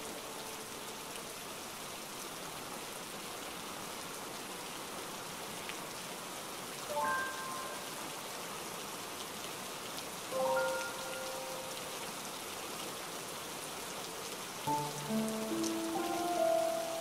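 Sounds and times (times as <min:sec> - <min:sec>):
rain splashing on wet surface: 0:00.0 - 0:17.0
held musical notes: 0:14.7 - 0:17.0.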